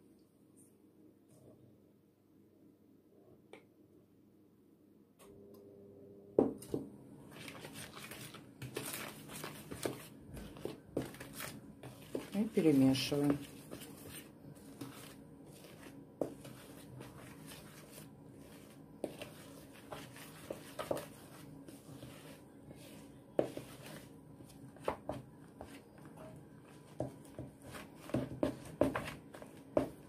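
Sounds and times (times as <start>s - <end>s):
hand mixing batter in bowl: 7.3s - 30.0s.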